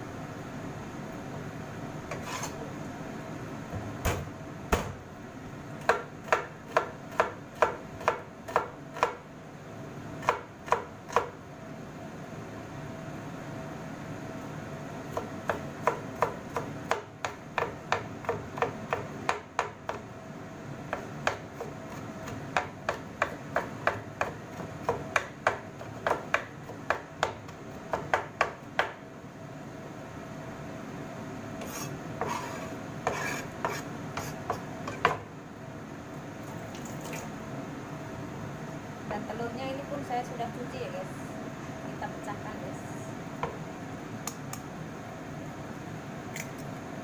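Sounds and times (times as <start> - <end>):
knife chopping on wooden board: 4.0 - 5.0, 5.8 - 9.2, 15.1 - 20.0, 20.9 - 29.0, 31.6 - 35.2.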